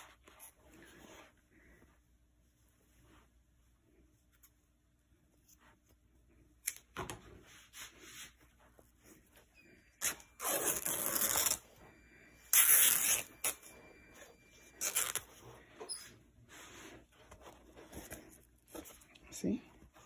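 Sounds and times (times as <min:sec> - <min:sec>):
cloth rustling and rubbing: 0:00.0 - 0:06.5, 0:07.2 - 0:20.0.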